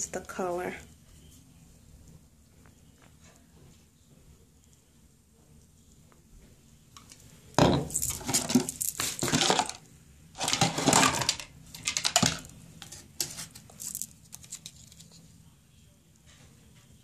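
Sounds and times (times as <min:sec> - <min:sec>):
plastic bottles clattering on tile: 0:07.6 - 0:09.8, 0:10.4 - 0:14.1.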